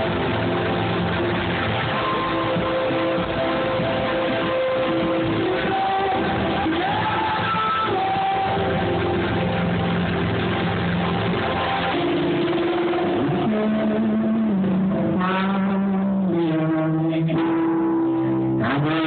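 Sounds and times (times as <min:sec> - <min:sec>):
live band guitar and bass: 0:00.0 - 0:19.0
person singing long notes: 0:01.9 - 0:10.5.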